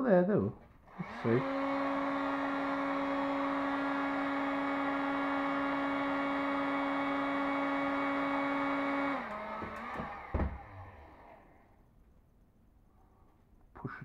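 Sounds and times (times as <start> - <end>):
heat gun whining: 0.8 - 11.9.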